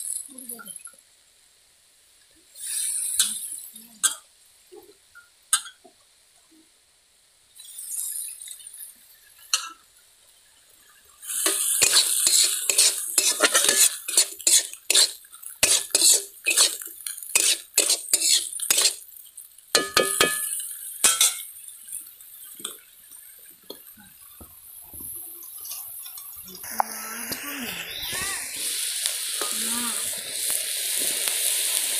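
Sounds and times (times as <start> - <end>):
prawns frying hiss: 0.0 - 31.9
metal spatula scraping a pan: 11.4 - 19.0, 25.5 - 26.3.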